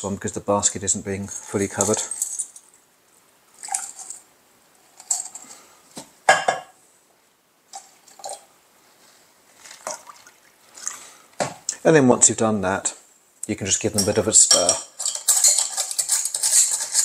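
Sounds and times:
liquid pouring and dripping: 0:03.6 - 0:04.2, 0:09.6 - 0:11.2.

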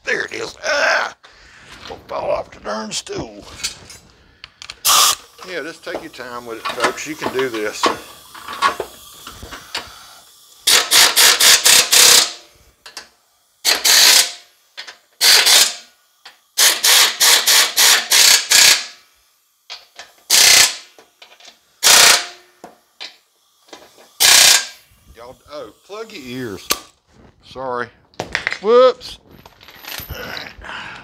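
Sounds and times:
pneumatic impact wrench rattling: 0:03.5 - 0:19.1, 0:19.7 - 0:25.1, 0:25.9 - 0:27.0.

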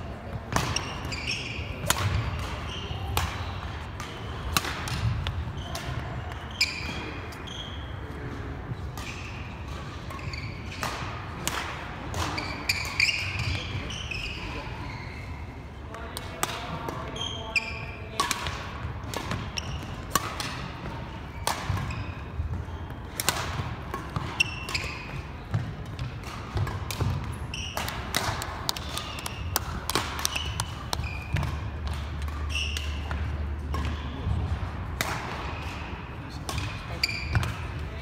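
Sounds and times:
sneakers squeaking: 0:00.1 - 0:38.0
rackets striking shuttlecock: 0:00.4 - 0:07.4, 0:08.9 - 0:13.6, 0:16.2 - 0:37.9.

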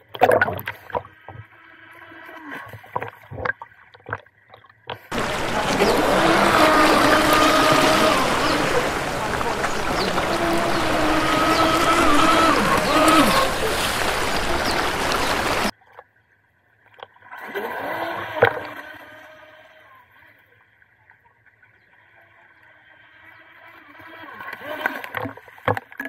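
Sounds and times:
wind and water noise: 0:00.0 - 0:26.0
rc boat motor whining: 0:05.1 - 0:15.7, 0:17.4 - 0:20.4, 0:23.2 - 0:25.2.

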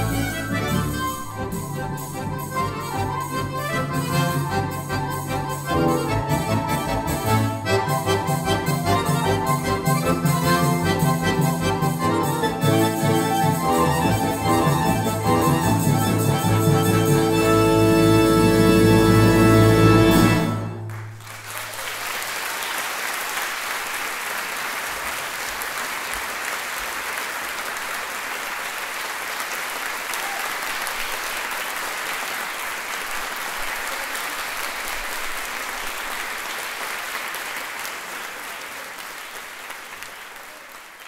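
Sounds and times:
accordion orchestra final chord: 0:00.0 - 0:21.1
audience applauding: 0:20.0 - 0:41.0.

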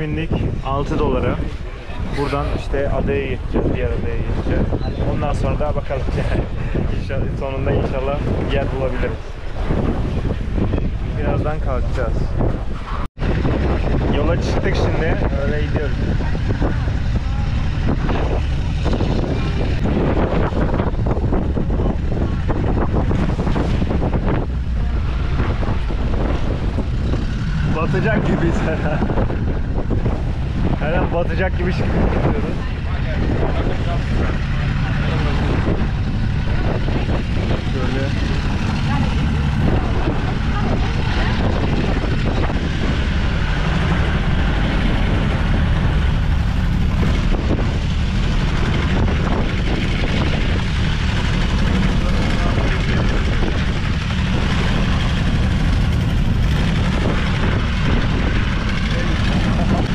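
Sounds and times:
boat engine low rumble: 0:00.0 - 0:59.9
wind buffeting microphone: 0:00.0 - 0:59.9
choppy water splashing on hull: 0:15.6 - 0:59.9.

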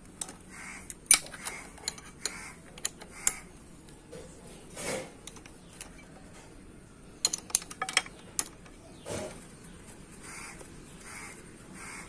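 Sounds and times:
metal tools clinking: 0:00.2 - 0:03.4, 0:07.2 - 0:08.8
crow cawing: 0:00.5 - 0:00.9, 0:10.2 - 0:12.0.

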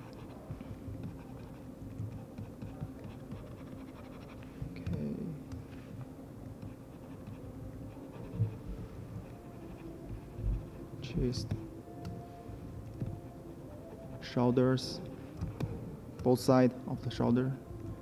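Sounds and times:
faint scratching and ticks: 0:00.0 - 0:11.7
steady low hum: 0:00.0 - 0:18.0.

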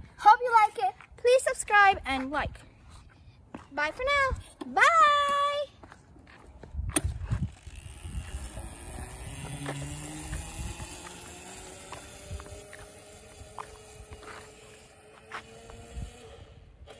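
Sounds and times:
electric motor whining: 0:07.4 - 0:16.9.

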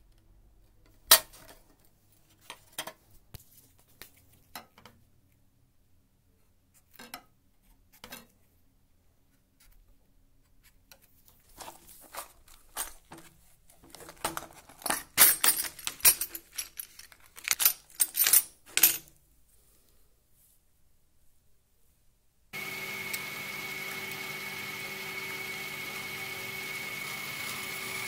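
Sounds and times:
drill bits rattling and clinking: 0:13.9 - 0:19.0.

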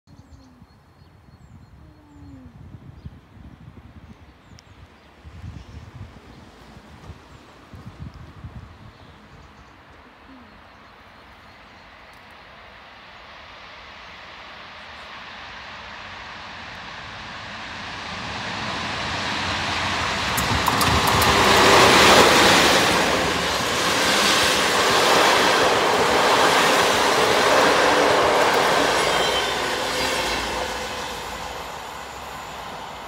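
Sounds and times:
electric locomotive passing: 0:11.6 - 0:33.0
wheels rumbling on rails: 0:16.1 - 0:33.0.

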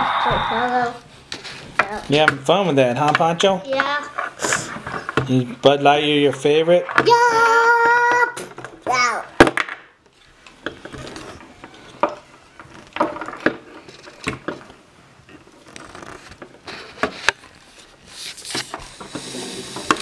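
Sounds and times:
plastic rubbing: 0:10.1 - 0:20.0.

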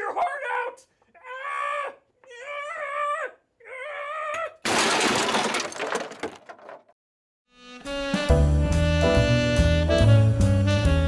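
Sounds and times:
glass shattering: 0:04.6 - 0:06.7.

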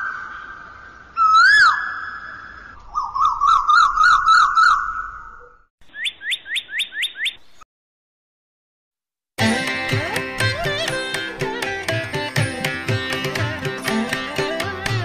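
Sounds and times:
bird calls swooping: 0:00.0 - 0:07.6
bird trilling: 0:01.2 - 0:07.6.

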